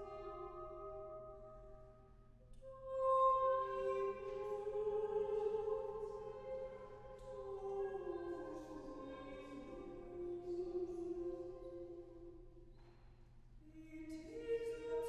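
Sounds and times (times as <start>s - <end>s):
women's choir singing chords: 2.9s - 12.2s.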